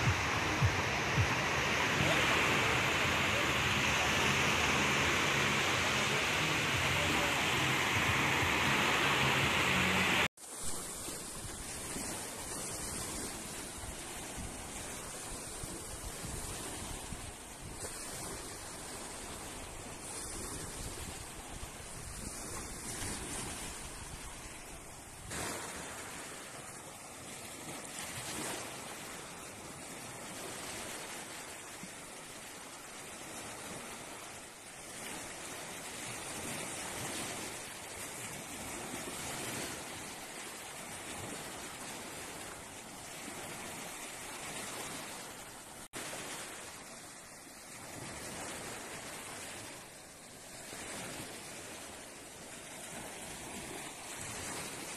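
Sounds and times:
wind rumble on microphone: 0.0s - 10.3s, 11.2s - 26.4s
sea waves breaking on beach: 0.0s - 54.9s.

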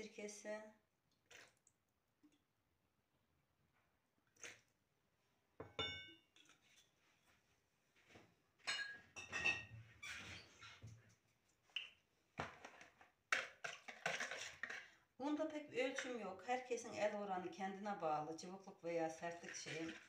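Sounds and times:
dish clink: 5.6s - 6.2s, 8.7s - 9.7s
dishes and utensils clattering: 8.6s - 10.4s, 12.5s - 14.9s.

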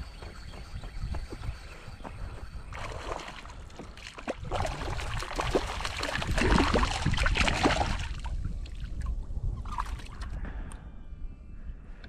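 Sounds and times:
fish splashing and thrashing: 2.7s - 9.0s.

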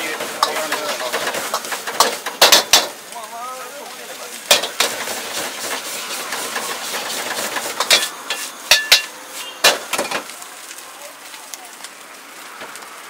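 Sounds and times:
gas burner rushing: 0.0s - 10.4s
rice sizzling in a wok: 0.0s - 13.0s
metal ladle clanging on wok: 7.8s - 9.8s.

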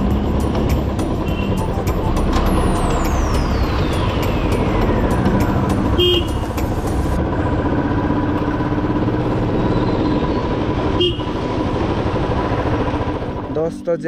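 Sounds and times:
vehicle engine and road noise: 0.0s - 14.0s
car horn toots: 5.9s - 6.5s, 10.9s - 11.4s.

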